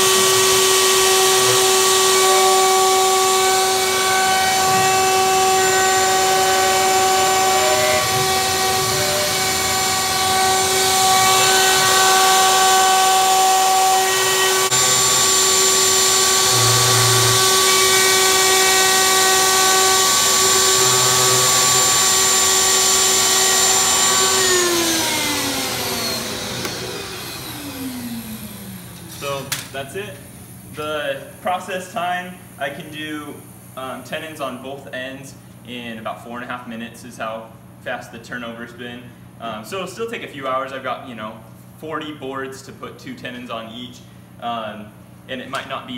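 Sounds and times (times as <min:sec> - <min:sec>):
router spindle whining: 0:00.0 - 0:29.5
shop vacuum sucking: 0:00.0 - 0:29.6.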